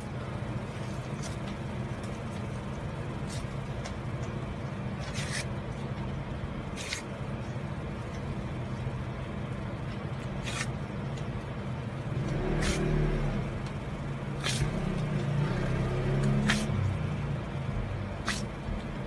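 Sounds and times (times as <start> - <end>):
low mechanical hum: 0.0 - 19.0
short hissing swish: 18.2 - 18.5.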